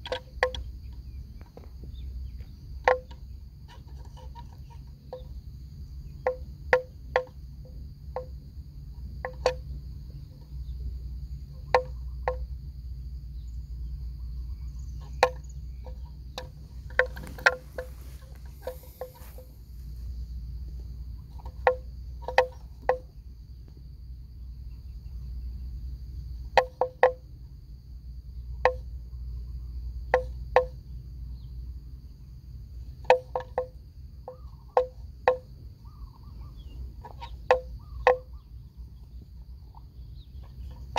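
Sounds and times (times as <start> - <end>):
high insect drone: 0.0 - 40.9
wooden bell clonking: 15.0 - 19.6.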